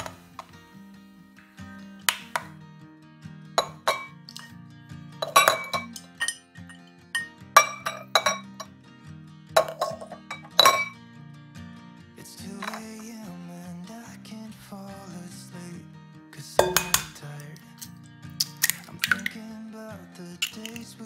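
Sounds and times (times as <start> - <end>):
background music: 0.0 - 21.0
eggs clinking in ceramic bowl: 3.6 - 4.5, 5.2 - 8.7, 9.6 - 11.0, 12.6 - 12.8, 16.6 - 17.2, 18.4 - 19.4, 20.4 - 20.9.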